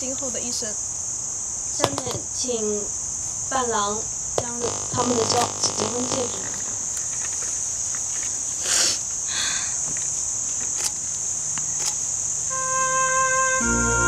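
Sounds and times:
high-pitched insect buzz: 1.7s - 8.1s, 11.9s - 14.0s
brief rustle: 6.5s - 8.8s, 9.9s - 12.1s
soft sustained music tones: 12.5s - 14.0s.

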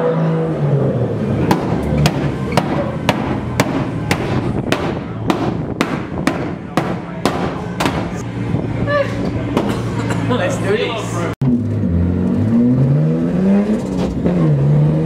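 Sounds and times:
sharp percussive hits: 1.5s - 8.2s.

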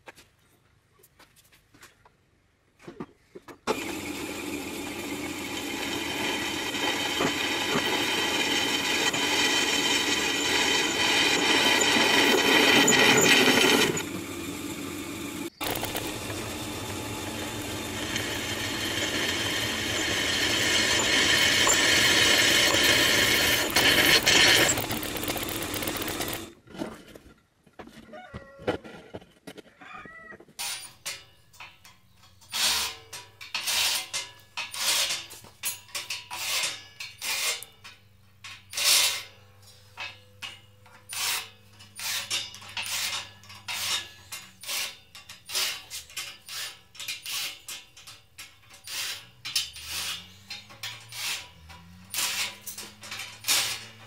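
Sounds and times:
power drill boring through steel: 3.7s - 26.5s, 48.8s - 54.0s.

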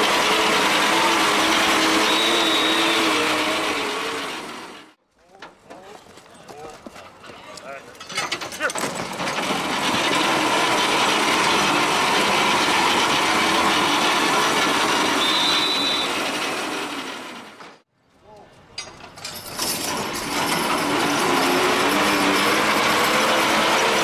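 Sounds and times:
machine rattling and grinding: 7.9s - 17.8s, 18.8s - 24.0s.

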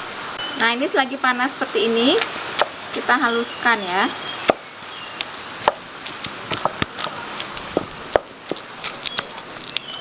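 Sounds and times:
pumpkin being mashed: 2.6s - 3.1s, 4.4s - 10.0s.

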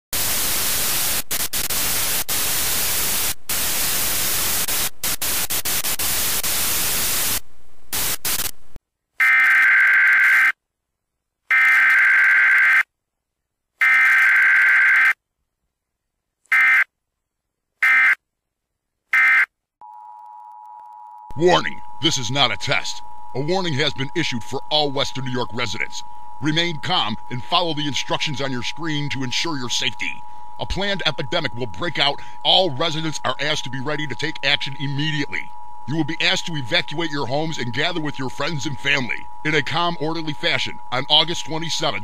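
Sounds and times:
harsh buzzing data bursts: 0.2s - 8.6s, 21.3s - 42.0s
television static hiss: 0.2s - 8.8s, 21.4s - 42.0s.

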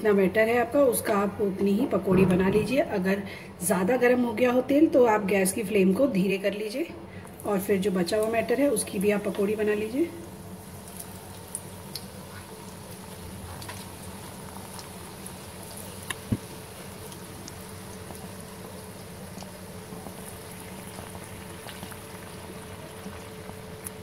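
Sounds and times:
deep-frying sizzle with crackles: 7.2s - 24.0s.

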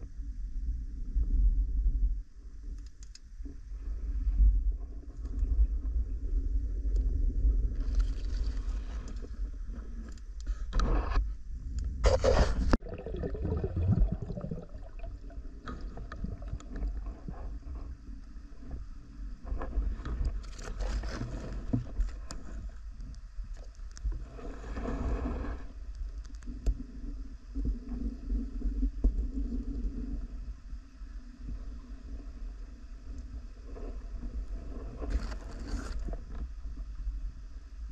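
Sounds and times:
low rumble of moving water: 0.0s - 37.9s
gurgling water bursts: 12.1s - 16.7s.

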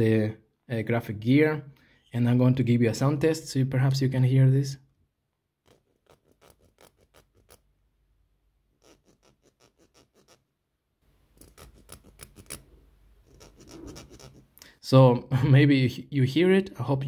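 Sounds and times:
fingertip scratching knurled metal: 5.6s - 7.7s, 8.8s - 10.4s, 11.4s - 14.5s.

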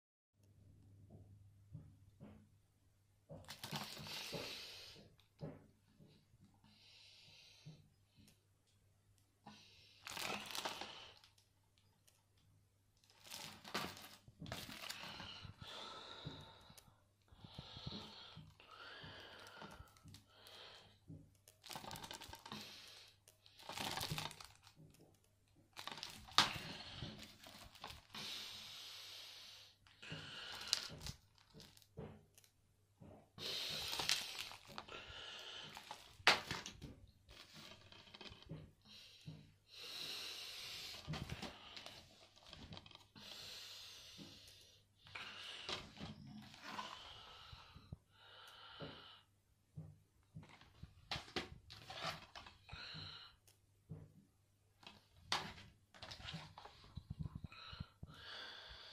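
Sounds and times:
plastic cases crinkling: 3.4s - 4.4s, 10.0s - 11.4s, 13.0s - 15.4s, 21.5s - 22.8s, 23.4s - 25.0s, 25.7s - 28.2s, 30.5s - 32.5s, 33.6s - 34.9s, 35.6s - 38.5s, 50.4s - 52.6s.

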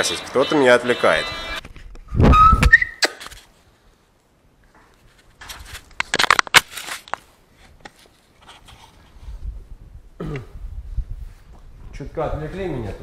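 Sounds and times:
clicks rustling and scraping: 4.7s - 9.2s.

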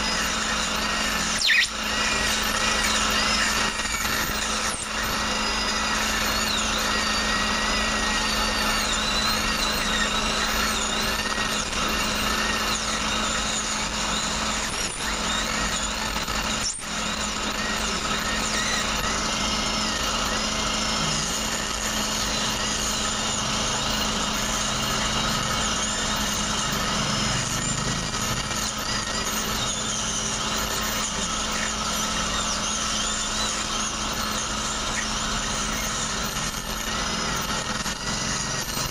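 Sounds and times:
dental drill running: 0.0s - 38.9s.

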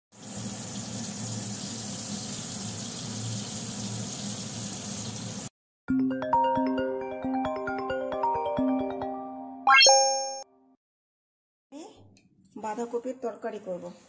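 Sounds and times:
phone ringtone chiming melody: 5.9s - 10.4s.

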